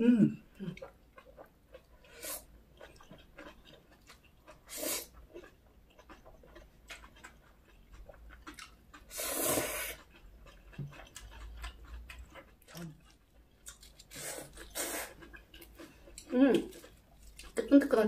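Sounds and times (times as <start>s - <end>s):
wet chewing: 0.6s - 17.9s
slurping noodles: 4.6s - 5.1s, 9.1s - 10.1s, 14.1s - 15.2s.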